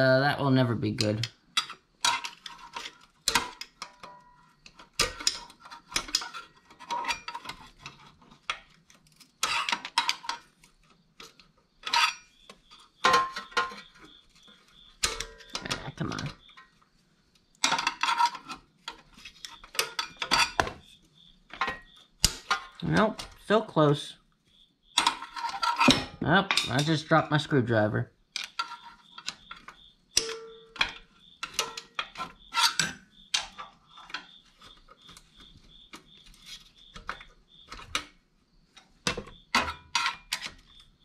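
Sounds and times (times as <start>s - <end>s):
screwdriver clinking on metal spring: 28.4s - 34.2s.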